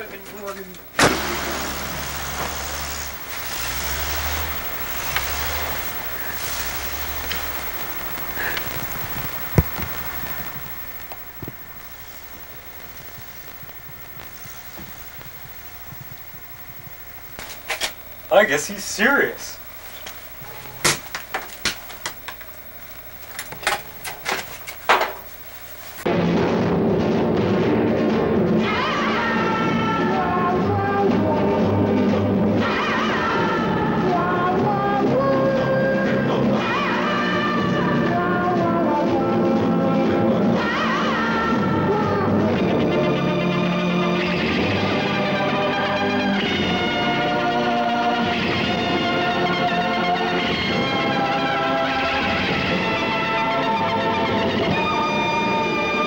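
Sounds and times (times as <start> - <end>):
steady hiss: 0.0 - 26.1
wavering pitched line: 0.9 - 20.8
car engine driving through snow: 1.1 - 11.4.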